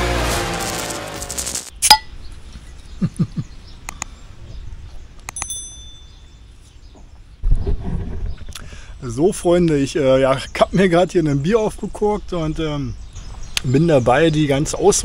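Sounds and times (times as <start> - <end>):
short metallic ring: 1.8 - 2.2, 5.4 - 6.3.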